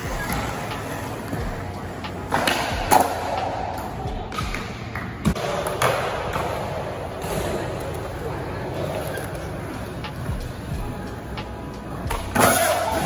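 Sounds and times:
skateboard wheels rolling on concrete: 0.0s - 13.0s.

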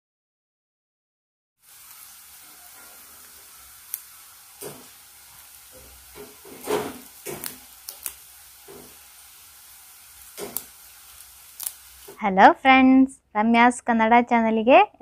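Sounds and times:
faint steady hiss: 1.6s - 13.6s
potato chips cracking: 7.3s - 8.2s, 10.4s - 12.2s.

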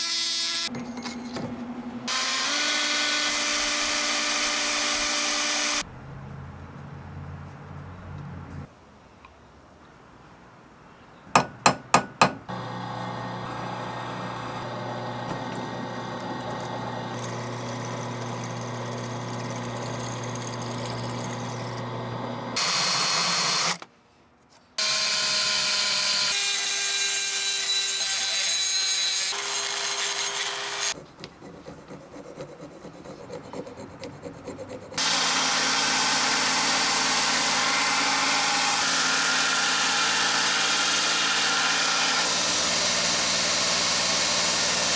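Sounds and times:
belt grinder running: 2.1s - 5.8s, 12.5s - 23.8s, 35.0s - 44.9s
drill boring into steel: 2.1s - 5.8s, 12.5s - 23.8s, 35.0s - 44.9s.

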